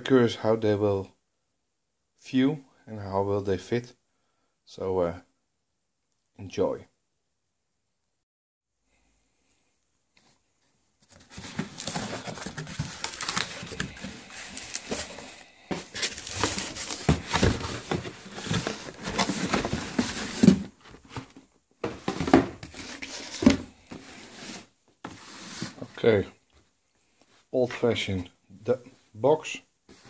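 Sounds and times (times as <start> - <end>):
cardboard crinkling and rustling: 10.2 - 26.2.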